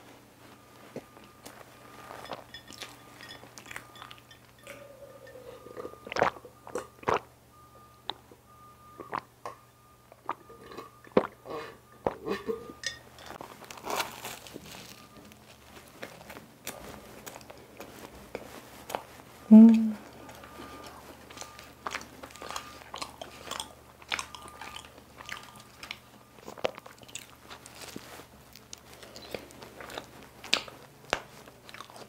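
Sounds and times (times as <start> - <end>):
wet chewing and mouth clicks: 1.0 - 7.3, 8.9 - 12.5, 13.6 - 32.0
swallowing: 4.6 - 7.3.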